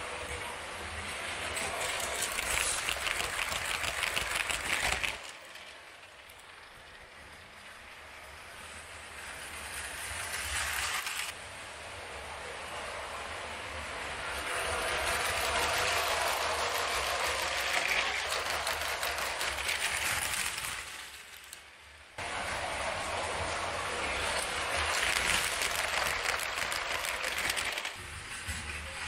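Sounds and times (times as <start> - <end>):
toy train rattling on plastic track: 0.0 - 11.4, 14.0 - 29.0.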